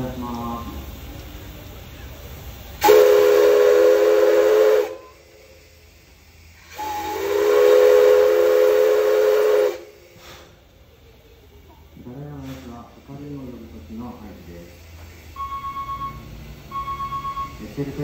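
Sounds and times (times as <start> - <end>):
hiss of steam: 0.0 - 18.0
steam whistle blasts: 2.8 - 5.5, 6.6 - 10.2.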